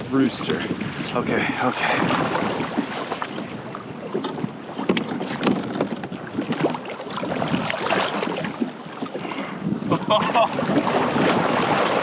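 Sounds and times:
sea and wind wash: 0.0 - 12.0
water slapping kayak hull: 0.0 - 12.0
fish thrashing splashes: 6.4 - 9.2.

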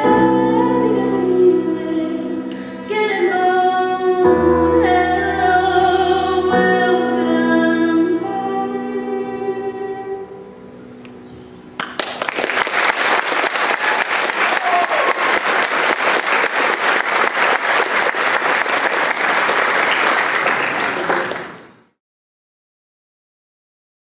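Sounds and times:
audience applauding: 11.8 - 21.8.

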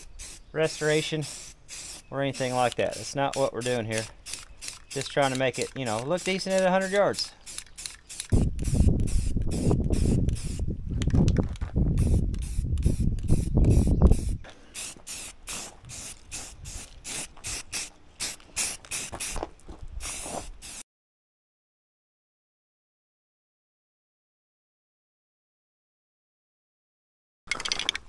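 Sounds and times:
spray can spraying in bursts: 0.0 - 10.7, 12.0 - 20.8.

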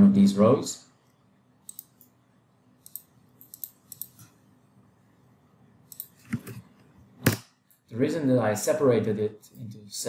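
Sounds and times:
computer mouse clicks: 1.6 - 2.1, 2.8 - 4.4.

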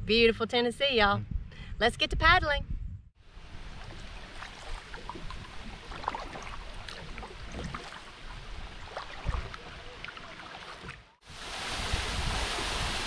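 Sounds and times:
water lapping at hull: 3.3 - 11.2
paddle splashes and drips: 3.4 - 13.0.

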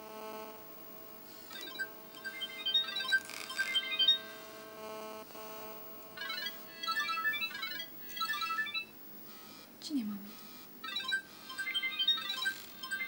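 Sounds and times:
electronic phone ringtone: 1.5 - 4.6, 6.2 - 9.0, 10.4 - 13.0.

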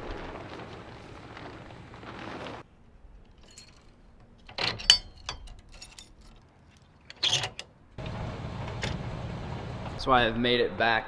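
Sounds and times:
metal chains clinking and rattling: 3.2 - 7.6.

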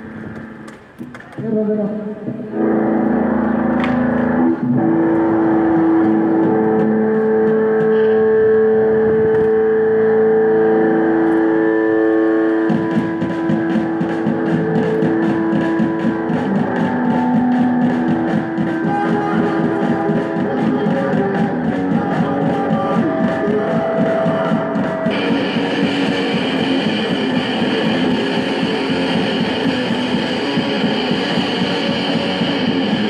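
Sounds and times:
electric guitar droning: 0.0 - 33.0
drums and cymbals beat: 12.2 - 33.0.

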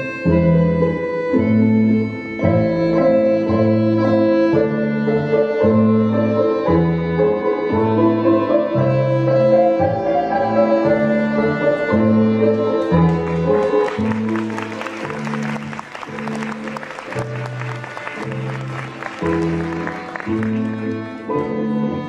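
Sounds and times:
dance music on bowed strings: 0.0 - 22.0
audience applause: 13.1 - 21.1.

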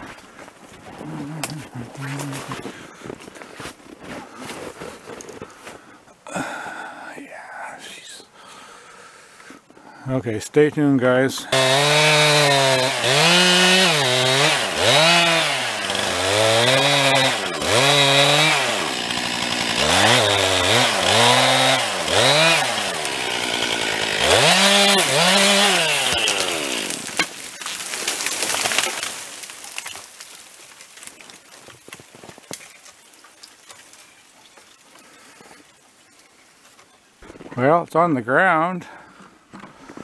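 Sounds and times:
chainsaw revving: 11.4 - 27.5
tree branches cracking: 11.6 - 37.6.

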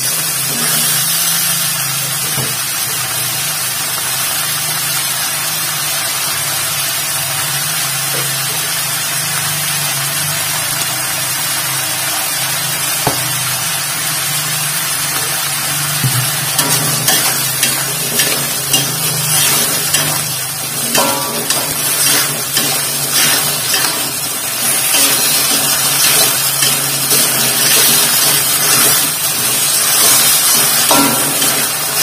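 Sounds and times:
food sizzling in a wok: 0.0 - 32.0
metal spatula scraping a pan: 16.6 - 32.0.

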